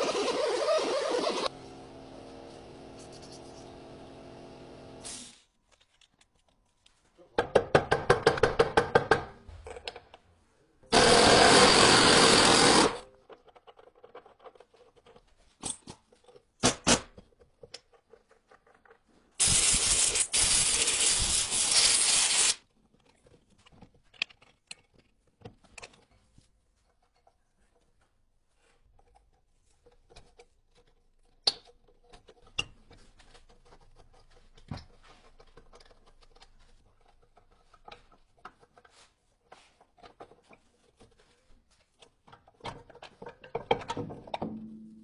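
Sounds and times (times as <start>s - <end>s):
taps and scrapes: 22.9s - 44.5s.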